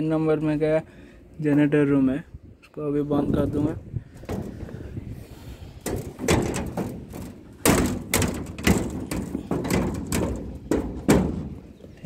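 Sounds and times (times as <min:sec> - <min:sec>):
metal door banging shut: 0:05.8 - 0:11.8.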